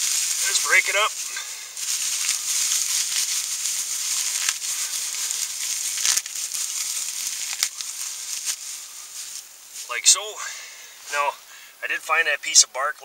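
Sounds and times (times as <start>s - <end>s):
dry tinder crackling: 0.0s - 11.8s
tinder snapping: 1.2s - 9.6s.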